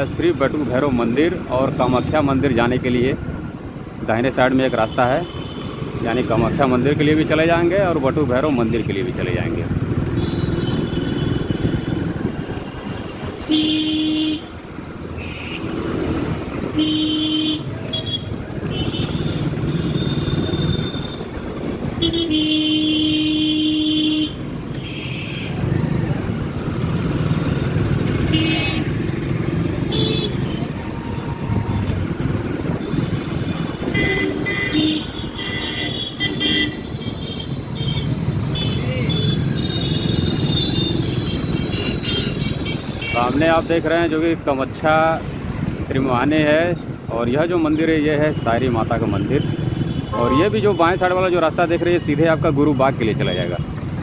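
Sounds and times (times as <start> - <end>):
city street traffic: 0.0 - 54.0
motorbike engine and road noise: 0.0 - 54.0
vehicle horns honking: 10.1 - 12.2, 13.2 - 14.6, 15.2 - 15.9, 16.6 - 25.7, 28.2 - 29.1, 29.8 - 30.8, 32.7 - 43.6, 49.2 - 51.1.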